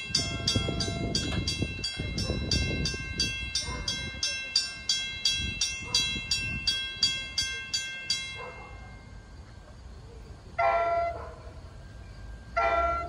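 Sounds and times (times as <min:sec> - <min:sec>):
railroad crossing bell ringing: 0:00.0 - 0:13.0
train horn blast: 0:10.6 - 0:11.2, 0:12.6 - 0:13.0.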